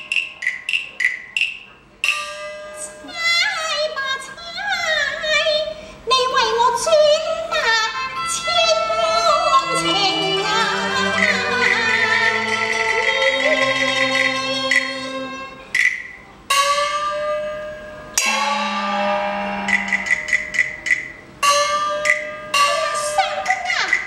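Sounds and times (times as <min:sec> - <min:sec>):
ringing percussion strikes: 0:00.0 - 0:03.1, 0:08.0 - 0:24.0
woman singing high gliding line: 0:06.2 - 0:15.6
instrumental accompaniment: 0:07.2 - 0:24.0.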